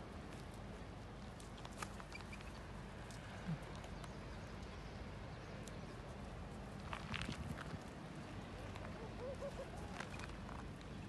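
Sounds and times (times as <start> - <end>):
faint outdoor hiss: 0.0 - 11.0.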